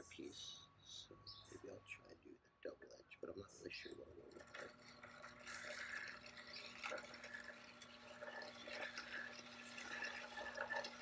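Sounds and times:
pottery wheel motor humming: 4.1s - 11.0s.

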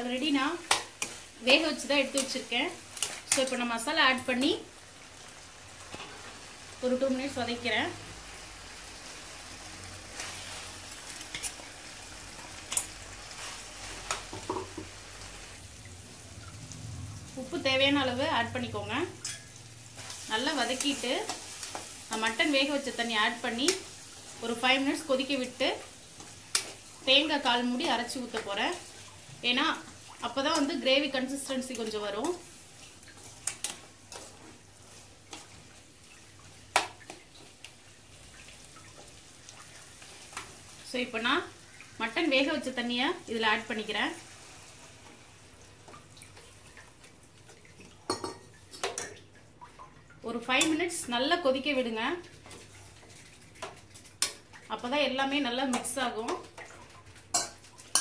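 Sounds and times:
meat sizzling in a pan: 0.0s - 17.6s, 19.2s - 45.8s.

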